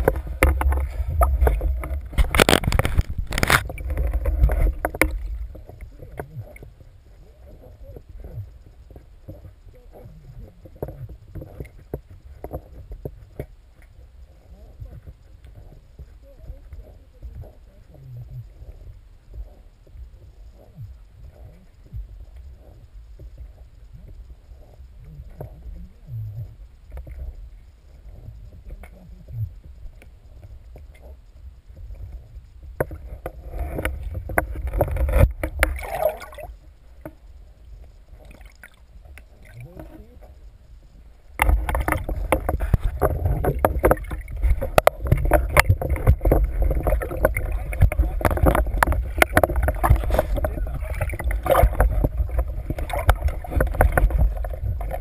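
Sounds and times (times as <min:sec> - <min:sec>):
water sloshing and splashing: 0:00.0 - 0:06.8, 0:32.8 - 0:37.2, 0:38.1 - 0:40.4, 0:41.4 - 0:55.0
faint clicks and knocks: 0:00.0 - 0:55.0
underwater rumble of water: 0:00.0 - 0:55.0.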